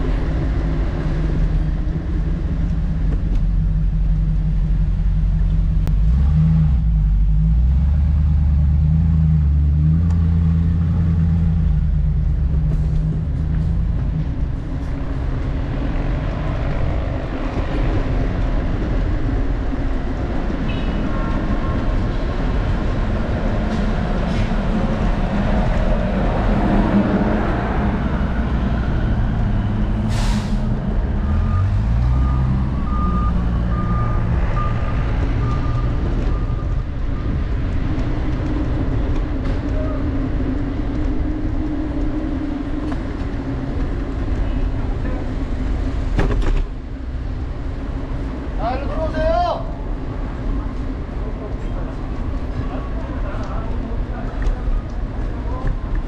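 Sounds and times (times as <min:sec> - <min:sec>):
engine pulling away: 0:00.0 - 0:19.7, 0:21.8 - 0:48.4
traffic engines rumbling: 0:00.0 - 0:56.0
short hiss: 0:30.1 - 0:30.6.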